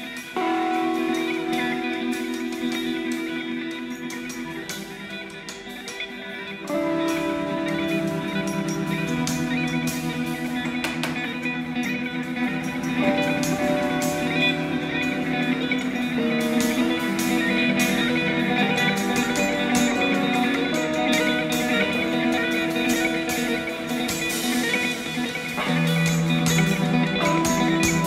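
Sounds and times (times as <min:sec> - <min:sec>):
guitar music with held notes: 0:00.0 - 0:28.0.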